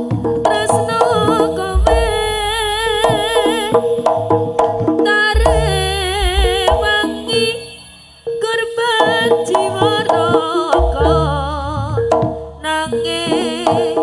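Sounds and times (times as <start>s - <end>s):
deep drum strokes: 0.0s - 7.6s, 9.1s - 14.0s
held steady tones: 0.0s - 14.0s
wavering high melody: 5.3s - 14.0s.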